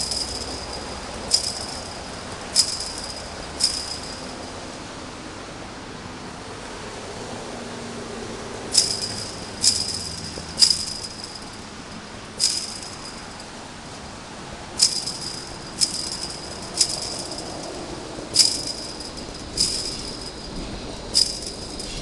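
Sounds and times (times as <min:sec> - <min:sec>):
chain-link fence rattling from kicks: 0:00.0 - 0:04.6, 0:08.7 - 0:13.6, 0:14.8 - 0:22.0.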